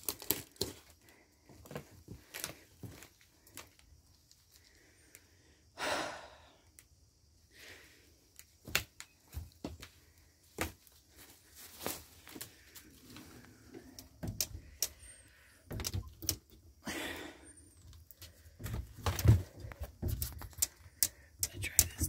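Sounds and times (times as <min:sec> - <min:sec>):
metal screen door clicks and knocks: 0:13.8 - 0:15.0, 0:15.7 - 0:16.6.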